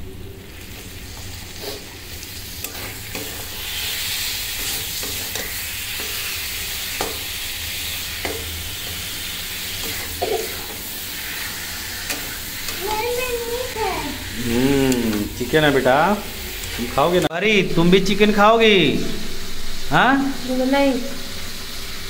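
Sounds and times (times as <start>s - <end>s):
masala sizzling in pan: 0.0s - 22.0s
metal spatula scraping pan: 1.5s - 12.9s.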